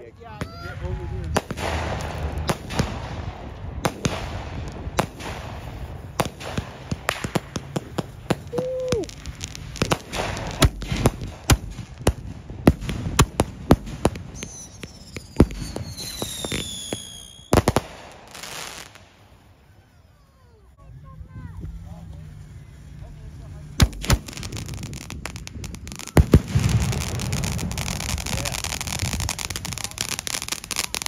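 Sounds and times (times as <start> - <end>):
fireworks bangs: 0.0 - 31.0
fireworks whistles falling: 5.0 - 12.1, 12.7 - 20.8.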